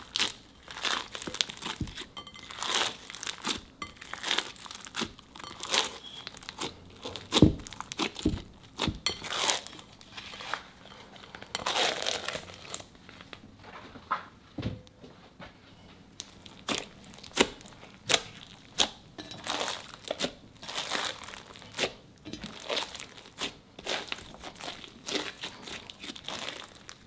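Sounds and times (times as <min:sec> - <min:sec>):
slime squeezed and crackling: 0:00.0 - 0:10.1, 0:11.5 - 0:12.9, 0:16.2 - 0:27.0.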